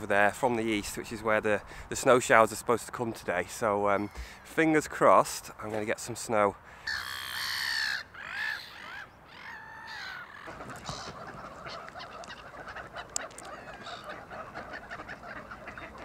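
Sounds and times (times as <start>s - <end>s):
ducks calling: 6.8s - 16.0s
gulls calling: 6.8s - 16.0s.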